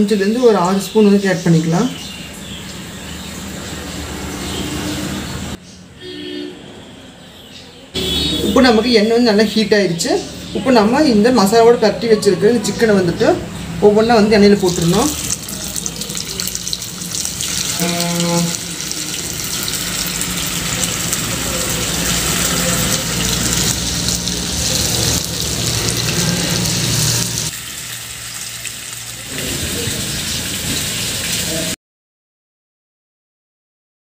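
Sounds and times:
chicken sizzling in hot oil: 2.2 - 5.5, 14.5 - 31.8.

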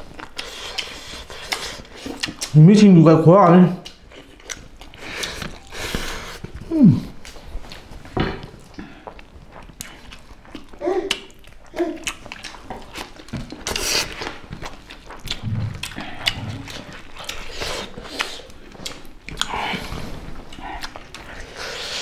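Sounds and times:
people chewing: 0.0 - 2.9, 3.8 - 22.0
clicks of biting food: 0.2 - 2.5
throaty mouth noises: 8.6 - 22.0.

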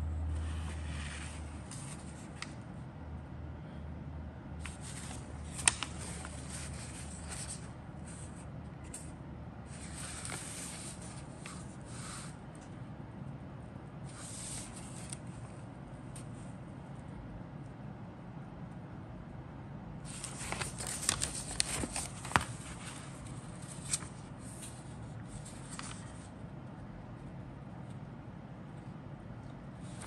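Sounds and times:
paper rustling: 0.4 - 2.6, 4.6 - 9.1, 9.7 - 12.4, 14.1 - 15.6, 20.1 - 26.3.

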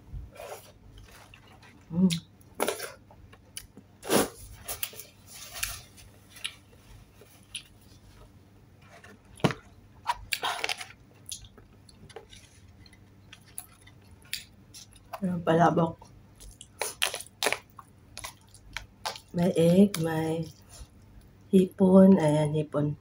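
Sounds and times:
person chewing: 0.4 - 8.0, 10.0 - 15.2, 16.4 - 21.2.

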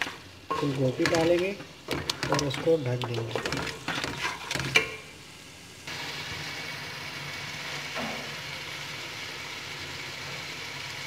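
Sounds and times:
frying sizzle in oil: 0.0 - 11.0
spatula scraping metal pot: 0.5 - 5.0.

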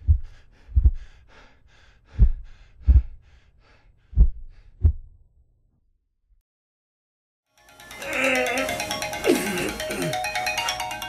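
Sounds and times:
heartbeat double thumps: 0.0 - 1.1, 2.1 - 3.3, 4.2 - 5.2.

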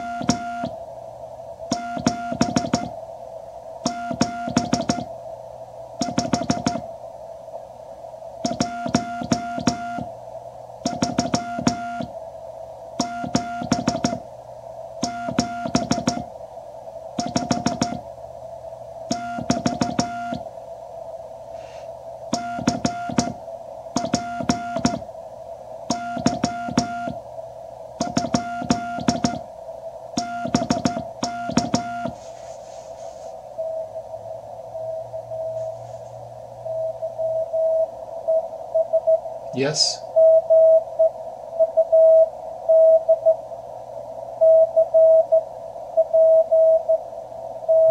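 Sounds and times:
morse code sidetone beeps: 0.0 - 0.7, 1.7 - 2.9, 3.9 - 5.1, 6.0 - 6.8, 8.5 - 10.1, 10.9 - 12.1, 13.0 - 14.2, 15.0 - 16.3, 17.2 - 18.0, 19.1 - 20.4, 22.4 - 23.4, 24.0 - 25.0, 25.9 - 27.2, 28.0 - 29.4, 30.2 - 32.2, 40.2 - 40.8, 41.7 - 43.3, 44.4 - 45.4, 46.0 - 47.0
receiver hiss: 0.0 - 47.9.

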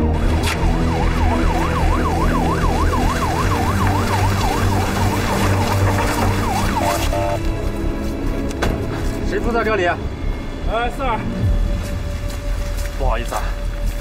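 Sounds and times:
police siren yelping: 0.1 - 7.5.

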